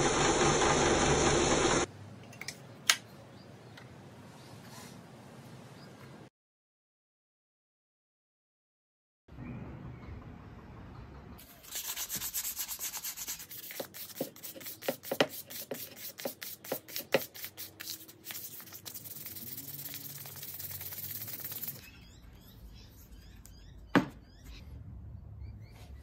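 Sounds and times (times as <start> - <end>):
sandpaper rubbing wood: 11.4 - 21.8.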